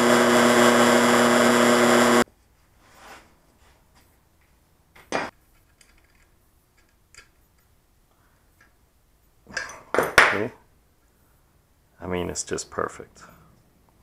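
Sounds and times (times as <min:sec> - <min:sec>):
clicks and knocks of metal parts: 0:04.4 - 0:07.8, 0:09.5 - 0:10.4.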